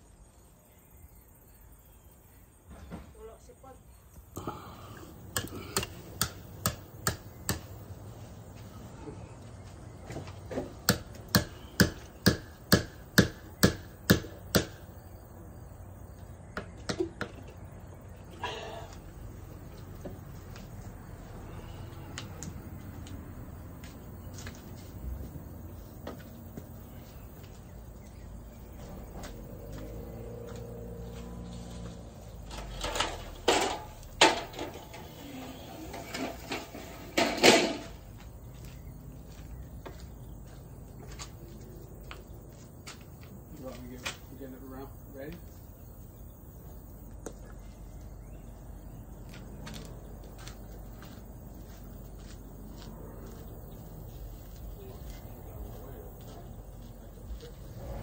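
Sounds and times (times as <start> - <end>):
sharp knocks and bumps: 16.5 - 17.6.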